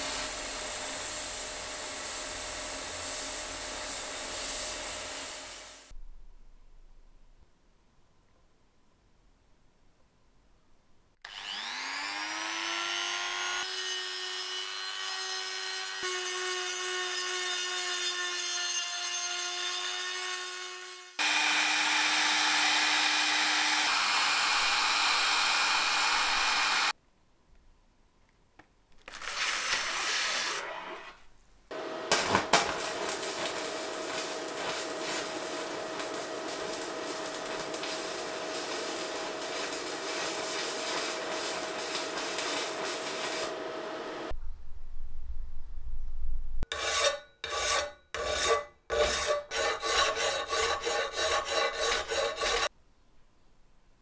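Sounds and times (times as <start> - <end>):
heat gun whine and blowing: 0.0 - 5.9, 11.2 - 14.4, 21.1 - 27.0, 29.1 - 44.4
welding hiss with hum: 0.0 - 5.9, 21.2 - 27.0, 29.2 - 44.4.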